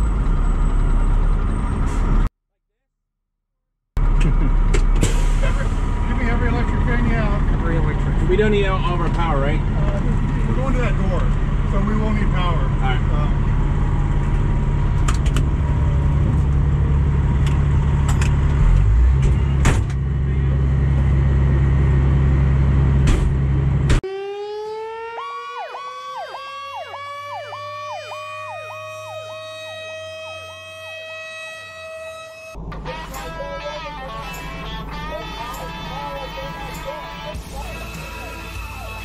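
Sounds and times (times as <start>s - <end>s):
siren wail: 24.0s - 39.0s
siren yelp: 24.0s - 39.0s
diesel engine idling: 32.5s - 39.0s.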